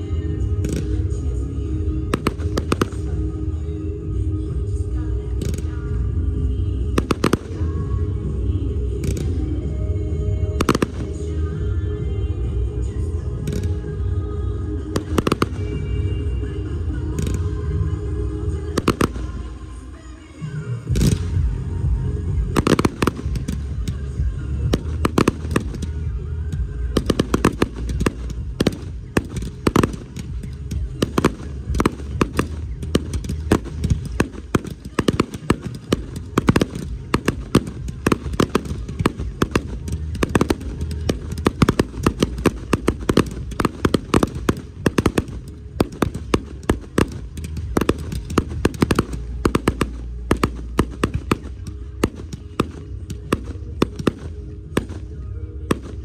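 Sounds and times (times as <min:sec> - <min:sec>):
continuous low rumble: 0:00.0 - 0:56.0
fireworks bangs and crackles: 0:00.0 - 0:56.0.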